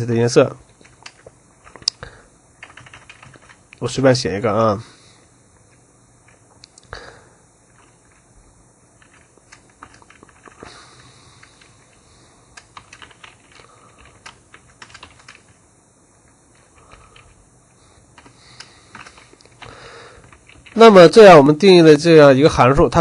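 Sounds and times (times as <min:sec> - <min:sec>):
typing on computer keyboard: 0:00.8 - 0:02.0, 0:02.6 - 0:03.6, 0:09.0 - 0:10.7, 0:12.6 - 0:15.6, 0:18.2 - 0:20.8.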